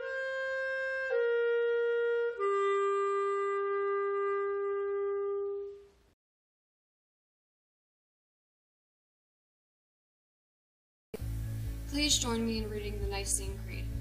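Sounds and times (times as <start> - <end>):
slow held instrumental notes: 0.0 - 5.9.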